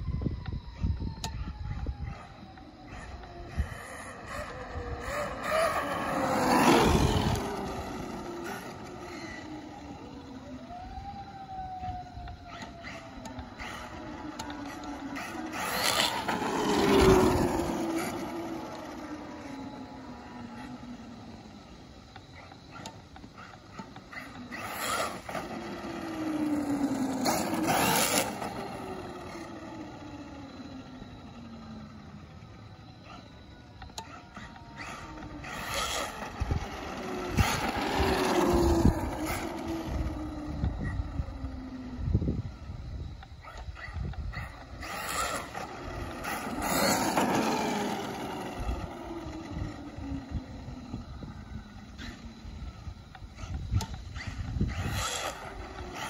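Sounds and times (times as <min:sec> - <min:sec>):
toy car motor whine: 0:00.2 - 0:56.0
tyres on wet road: 0:03.6 - 0:11.5, 0:12.6 - 0:22.0, 0:23.8 - 0:32.0, 0:34.9 - 0:40.5, 0:44.8 - 0:49.9.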